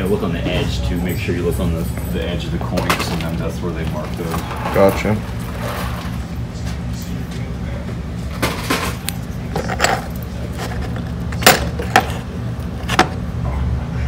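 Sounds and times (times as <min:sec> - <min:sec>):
steady low hum: 0:00.0 - 0:14.0
coins clinking in plastic bin: 0:08.5 - 0:12.2.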